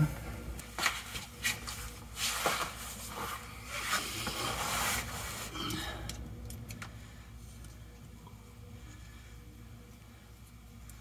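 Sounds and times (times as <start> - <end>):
clothing scraping on concrete floor: 0.8 - 5.6.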